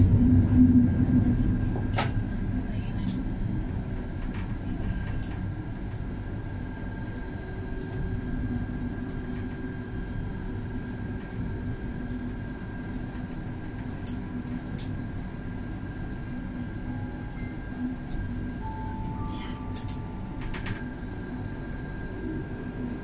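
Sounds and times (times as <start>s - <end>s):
tram wheels rumbling on rail: 0.0s - 18.6s, 19.7s - 23.0s
drive whine: 15.4s - 23.0s.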